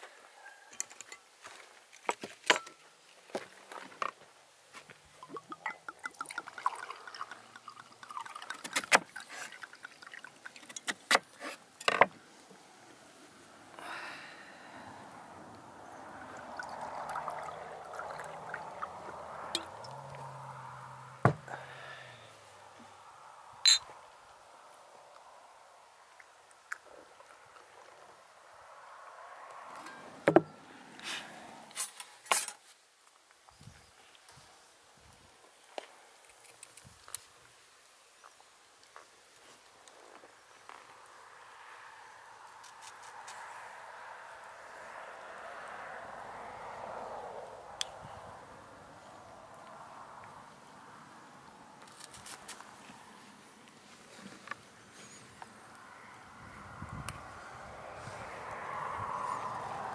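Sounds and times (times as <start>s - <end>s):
wine glugging from a bottle: 5.2s - 9.7s
glasses set down on table: 21.2s - 21.5s.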